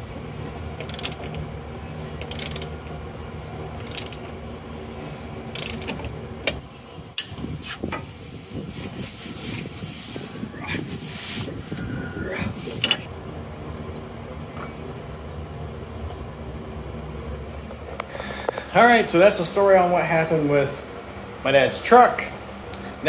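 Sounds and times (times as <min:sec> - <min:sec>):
ratchet wrench clicking: 0:00.8 - 0:01.4, 0:02.2 - 0:02.8, 0:03.8 - 0:04.3, 0:05.5 - 0:06.6
sharp metal knocks: 0:07.2 - 0:07.5.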